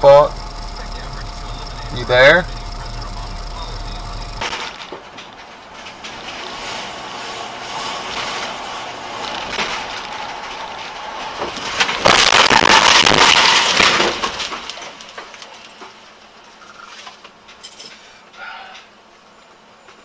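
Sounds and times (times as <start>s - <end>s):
car road and engine noise: 0.0s - 20.0s
loud car crash: 0.8s - 17.2s.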